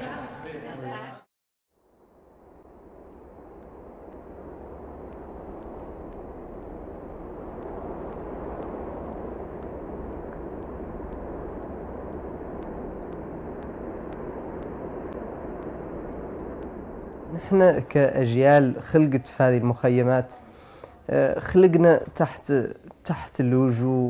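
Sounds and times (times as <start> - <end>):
steady wind: 1.8 - 24.0
faint high ticks: 3.1 - 17.2.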